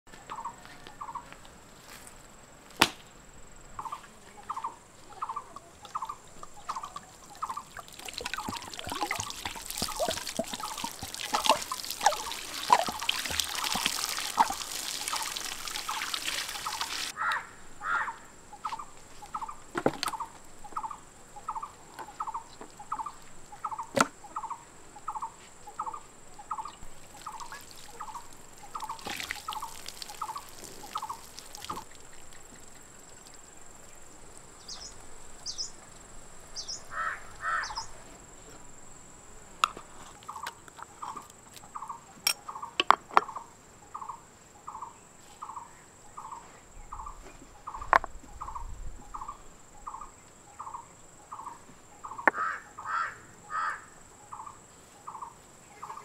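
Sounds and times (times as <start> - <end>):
water splashing on meat: 7.0 - 17.1, 26.9 - 33.4.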